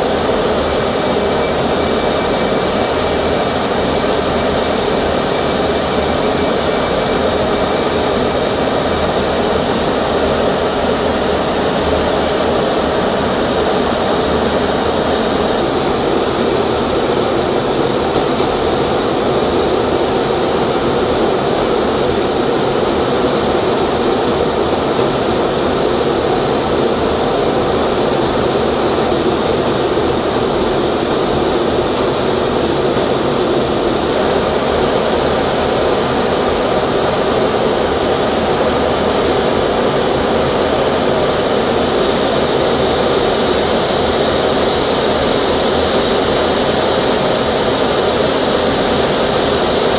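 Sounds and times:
rushing air: 0.0 - 16.2
jet engine drone: 0.0 - 49.9.

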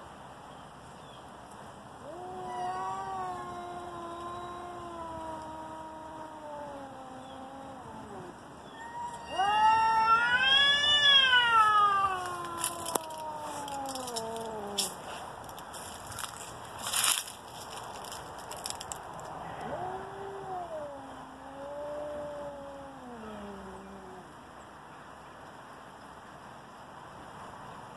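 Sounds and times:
cats yowling: 2.0 - 15.0, 19.5 - 24.4.

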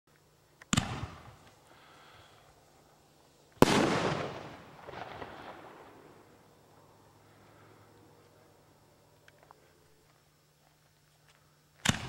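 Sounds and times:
small firework pops: 0.6 - 1.6, 3.5 - 5.8, 11.8 - 12.0
firework mortar launch bang: 3.6 - 5.8.

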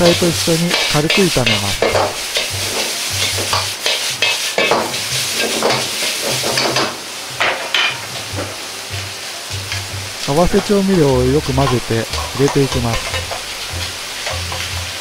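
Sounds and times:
food frying hiss: 0.0 - 15.0
metal ladle scraping a wok: 0.6 - 6.7.

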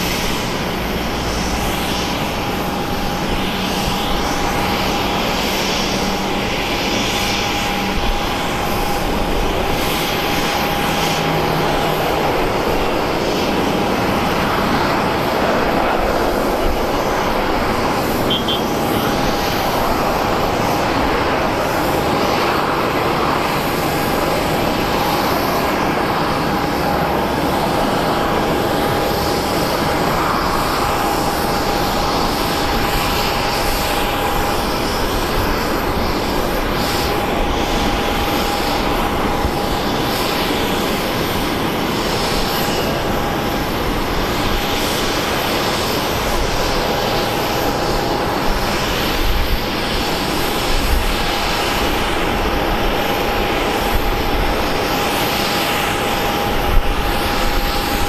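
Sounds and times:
aircraft engine whine: 0.0 - 58.0.

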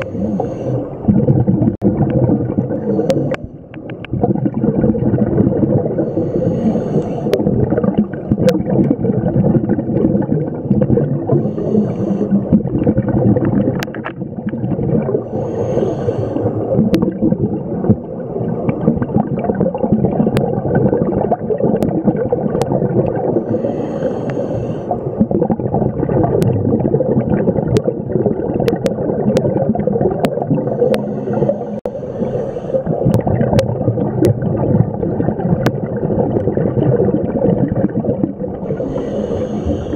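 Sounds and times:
hissing inhalation: 0.0 - 1.0, 2.8 - 3.5, 6.0 - 7.4, 11.4 - 12.4, 15.2 - 16.6, 23.4 - 25.0, 30.6 - 33.0, 38.7 - 39.9
scuba regulator bubbling exhale: 0.0 - 39.9.

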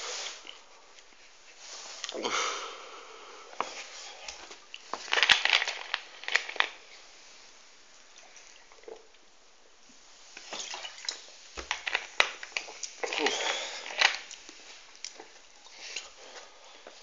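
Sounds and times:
plastic bottle crackling: 3.6 - 7.0, 10.4 - 15.4.

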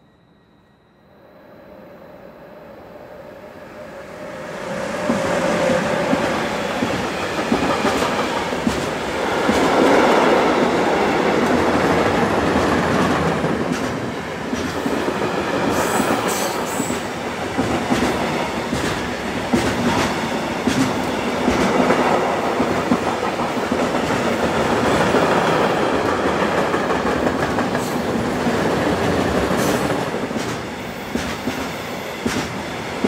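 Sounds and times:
high squeal: 0.0 - 6.7
train rolling rumble: 4.1 - 33.0.

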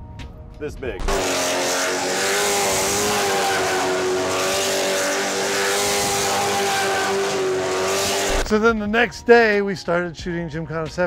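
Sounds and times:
car engine at steady revs: 1.0 - 8.5.

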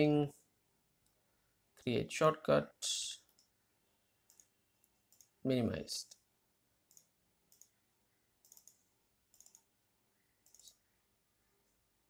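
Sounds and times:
computer mouse clicks: 4.3 - 5.4, 6.9 - 7.8, 8.4 - 9.7, 10.4 - 10.8.

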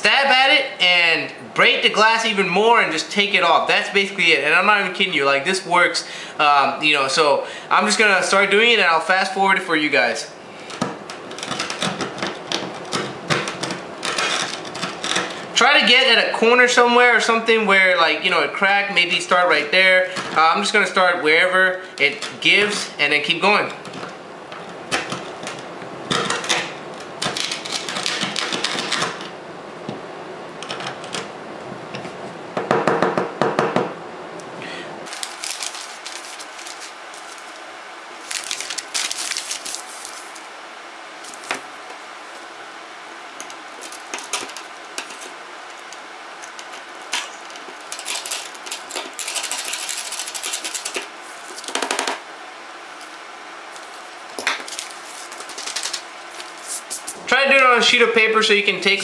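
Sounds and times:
newspaper rustling: 35.1 - 52.2, 52.8 - 57.2.

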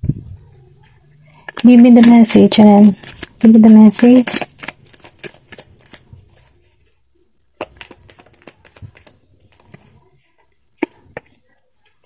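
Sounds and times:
cards being shuffled: 1.4 - 6.6, 7.6 - 10.0.

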